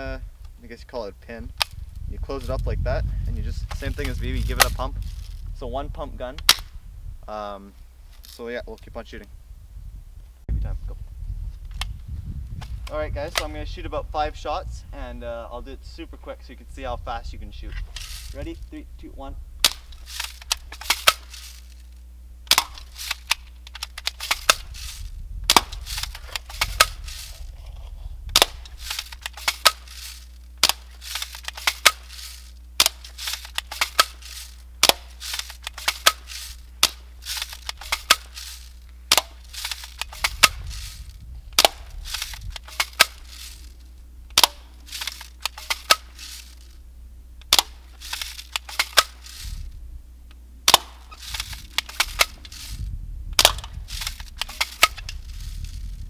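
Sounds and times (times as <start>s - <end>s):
air rifle shots popping: 3.6s - 5.2s, 6.4s - 6.8s, 19.6s - 21.8s, 22.4s - 27.5s, 28.2s - 46.8s, 47.4s - 49.7s, 50.6s - 52.8s, 53.4s - 55.9s
rifle bolt and lever clicks: 19.6s - 21.9s, 22.5s - 27.5s, 28.3s - 46.8s, 47.4s - 49.6s, 50.3s - 52.8s, 53.4s - 55.8s.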